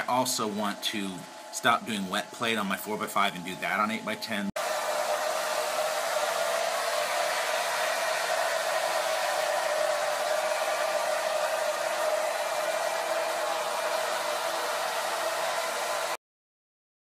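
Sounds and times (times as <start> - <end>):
hair dryer running: 4.6 - 16.2.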